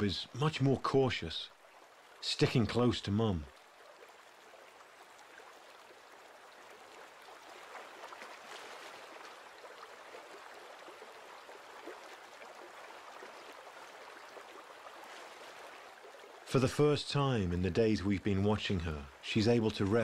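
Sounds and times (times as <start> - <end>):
river running over stones: 0.0 - 20.0.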